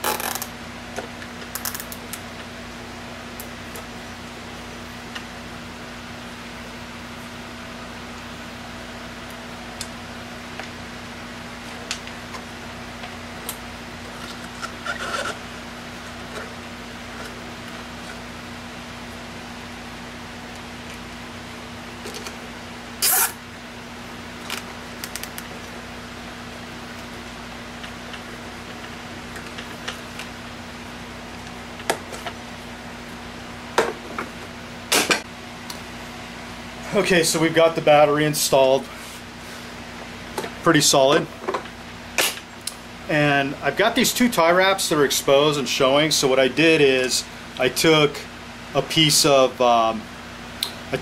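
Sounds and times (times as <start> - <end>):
background hum: 0.0 - 51.0.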